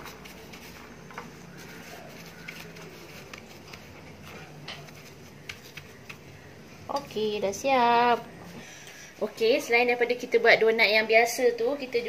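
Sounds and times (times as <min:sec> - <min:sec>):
donut rolled in sugar: 0:00.0 - 0:08.4.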